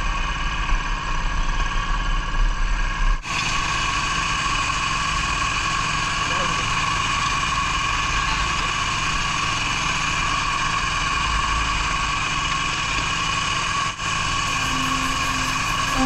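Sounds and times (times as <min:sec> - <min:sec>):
air compressor engine drone: 0:00.0 - 0:16.0
compressor whine: 0:03.2 - 0:16.0.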